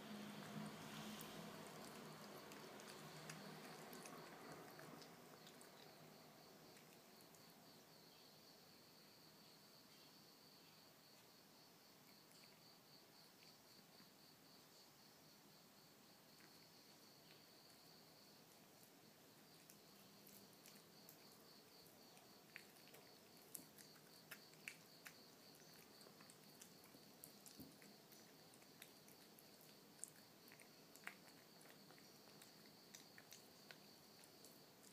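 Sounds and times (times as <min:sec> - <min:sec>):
kitten chewing and licking: 0:00.0 - 0:08.2, 0:12.0 - 0:14.2, 0:16.2 - 0:34.9.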